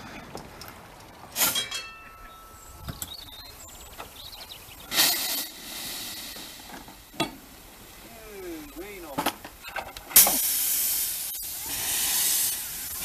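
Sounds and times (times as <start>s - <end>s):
steam locomotive blast of steam: 4.8s - 8.0s, 10.1s - 13.0s.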